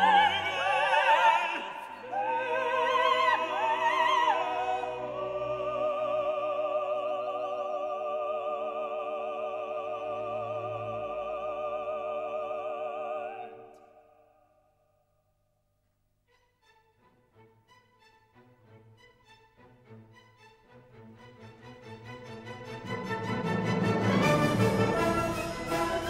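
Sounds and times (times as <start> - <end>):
operatic singing with vibrato: 0.0 - 14.4, 21.4 - 26.0
classical accompaniment: 16.2 - 26.0.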